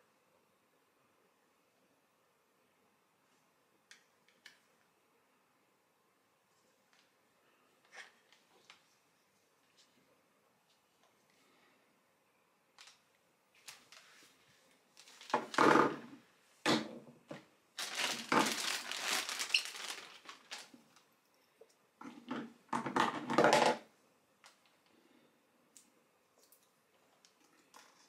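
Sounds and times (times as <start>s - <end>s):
plastic bags crinkling: 13.6s - 16.1s, 17.7s - 21.1s.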